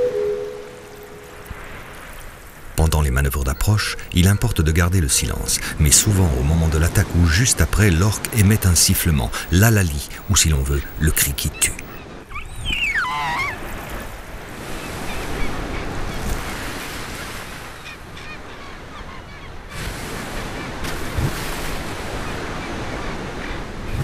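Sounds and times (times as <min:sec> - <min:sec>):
killer whale whistle: 0:00.0 - 0:01.3
surf breaking on beach: 0:00.0 - 0:11.6, 0:19.7 - 0:24.0
sea noise: 0:00.0 - 0:24.0.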